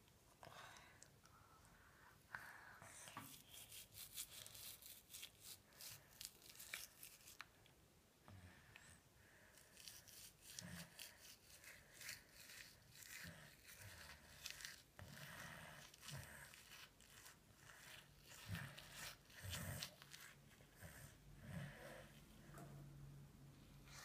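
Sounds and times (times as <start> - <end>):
toothbrush scrubbing teeth: 3.3 - 7.5, 9.5 - 21.2.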